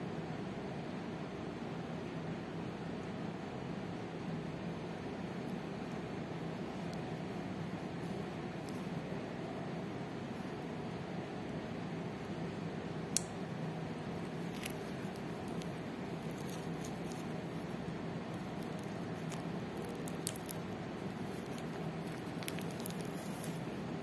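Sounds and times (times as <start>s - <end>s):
background hiss and hum: 0.0s - 24.0s
soft rustling of hands: 18.4s - 23.9s.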